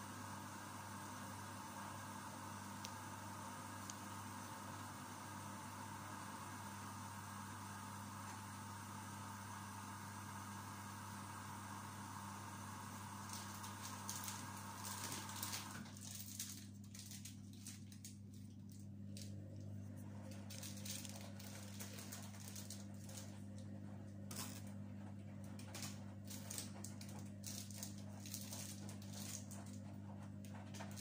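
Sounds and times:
rustling of wrappers: 0:13.2 - 0:19.4, 0:20.2 - 0:23.4, 0:25.6 - 0:29.8.

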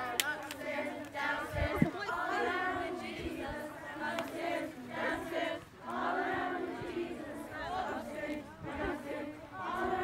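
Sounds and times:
young voices singing worship song: 0:00.0 - 0:10.0.

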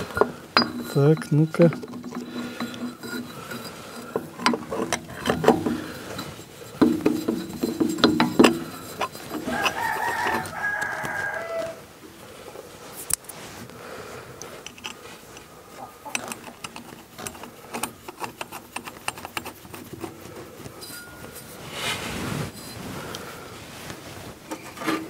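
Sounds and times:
rooster crowing: 0:09.4 - 0:11.9.

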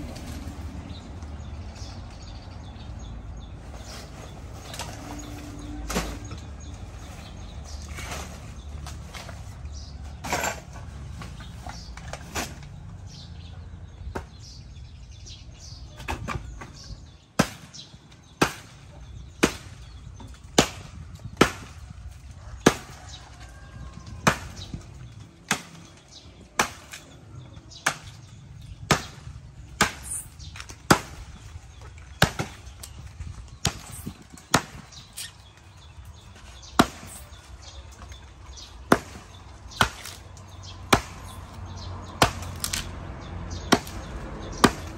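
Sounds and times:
machete chopping wood: 0:16.0 - 0:22.0, 0:22.6 - 0:23.2, 0:23.9 - 0:24.8, 0:25.4 - 0:35.4, 0:36.4 - 0:44.9.

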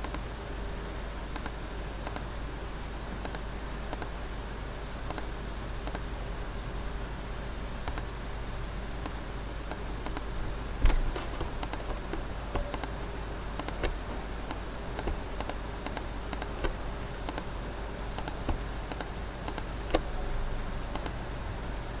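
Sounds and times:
low electrical hum: 0:00.0 - 0:22.0
computer mouse clicking: 0:01.4 - 0:02.3, 0:05.1 - 0:06.0, 0:10.0 - 0:13.0, 0:13.6 - 0:20.1, 0:20.9 - 0:21.2.

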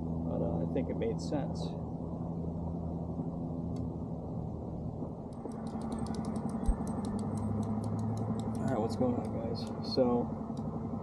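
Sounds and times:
low rumble: 0:00.0 - 0:11.0.

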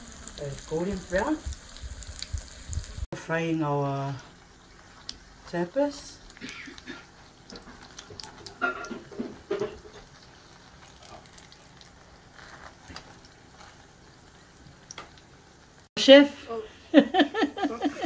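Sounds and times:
oil sizzling in a frying pan: 0:00.0 - 0:17.3.

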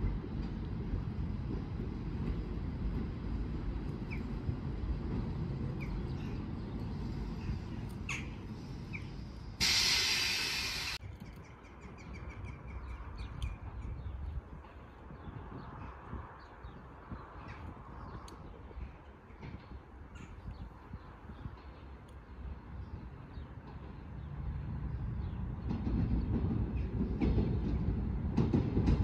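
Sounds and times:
train rumble: 0:00.0 - 0:29.0
birds calling: 0:05.0 - 0:24.3
loud hiss: 0:08.5 - 0:11.0.

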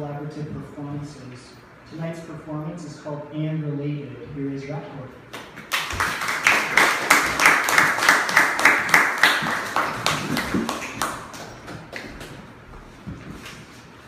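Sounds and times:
audience clapping: 0:05.3 - 0:12.5.

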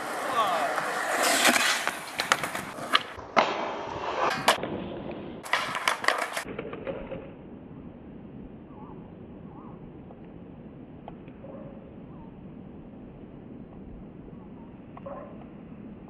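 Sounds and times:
skateboard wheels rolling on concrete: 0:00.0 - 0:08.3, 0:09.2 - 0:16.0
faint outdoor background: 0:00.0 - 0:16.0
skateboard clacking and knocking: 0:05.4 - 0:07.3.

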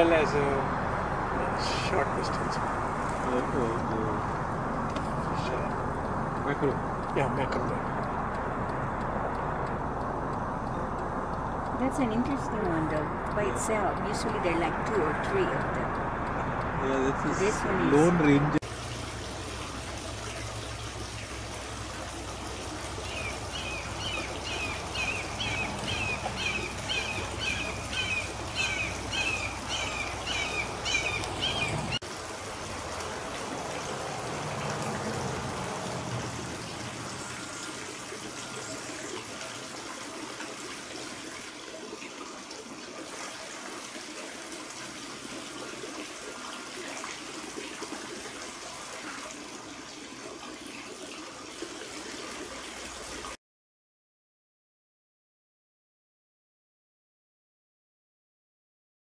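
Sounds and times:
fountain water trickling: 0:00.0 - 0:53.4
raptor calling: 0:23.0 - 0:32.0.

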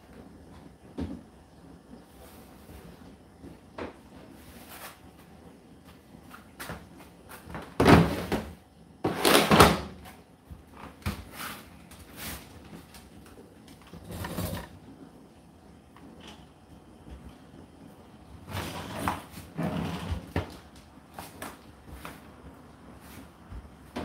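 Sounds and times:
plastic drawer scraping: 0:13.9 - 0:14.8, 0:18.4 - 0:20.6.

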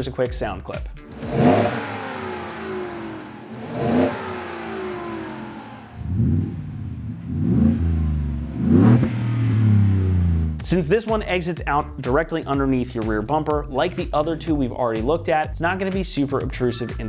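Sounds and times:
car engine revving: 0:01.1 - 0:10.7.

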